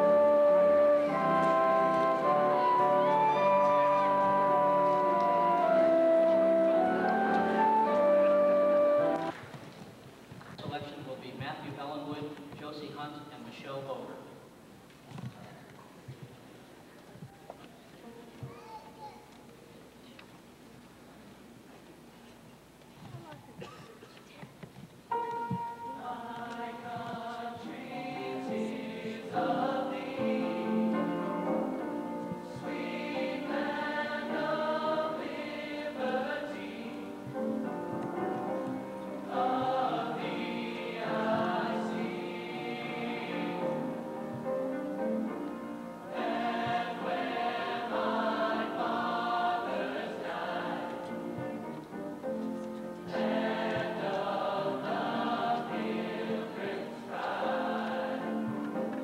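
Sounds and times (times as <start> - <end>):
school choir singing: 0.0 - 9.3, 25.1 - 44.3, 46.1 - 51.4, 53.0 - 59.0.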